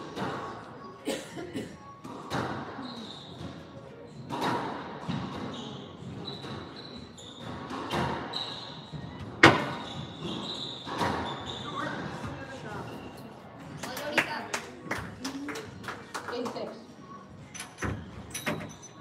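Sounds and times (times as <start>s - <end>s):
squash ball hitting rackets and walls: 2.1s - 2.8s, 4.2s - 6.6s, 7.3s - 12.2s
shoes squeaking on hardwood floor: 2.3s - 13.2s.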